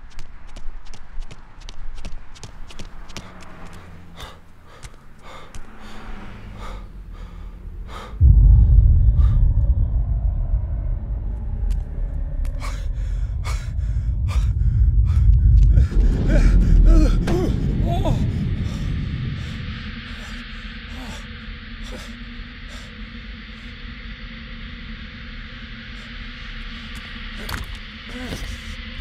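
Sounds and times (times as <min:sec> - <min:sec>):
footsteps on pavement: 0:00.0 - 0:06.0
deep rumbling drone: 0:02.9 - 0:29.0
person gasping: 0:04.1 - 0:08.5, 0:12.5 - 0:22.9.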